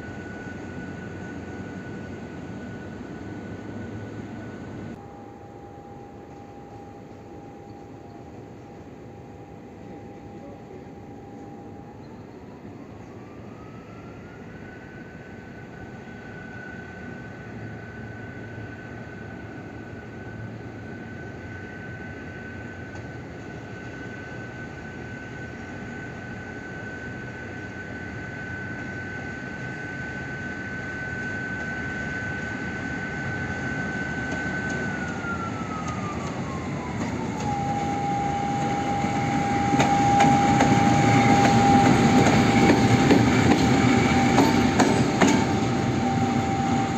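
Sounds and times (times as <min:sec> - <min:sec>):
diesel locomotive engine whining: 0:00.0 - 0:46.9.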